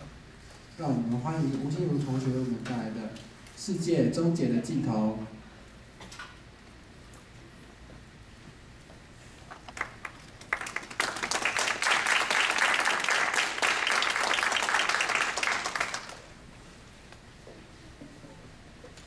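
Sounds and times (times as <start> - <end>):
audience applauding: 9.5 - 16.3.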